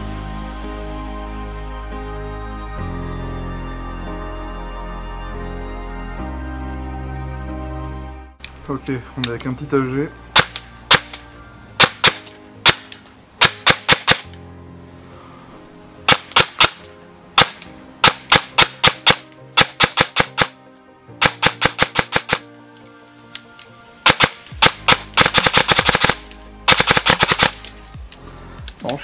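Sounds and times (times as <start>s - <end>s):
airsoft gun firing: 10.4s - 11.2s, 11.8s - 14.3s, 16.1s - 16.8s, 17.4s - 20.6s, 21.2s - 22.4s, 24.0s - 27.7s.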